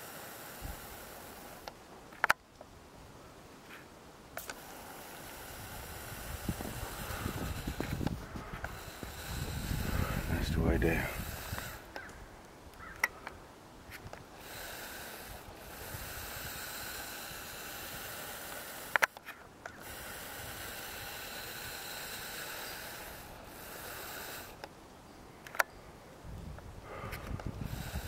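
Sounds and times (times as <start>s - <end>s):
person breathing heavily: 0.0s - 1.7s, 3.7s - 12.1s, 12.8s - 24.7s, 26.8s - 28.0s
sharp clicks: 0.9s - 2.7s, 4.4s - 24.8s, 25.4s - 25.7s.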